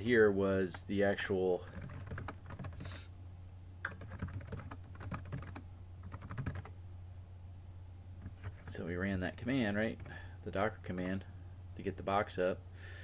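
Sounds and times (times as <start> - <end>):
steady low hum: 0.0 - 13.0
keyboard typing clicks: 3.9 - 6.7.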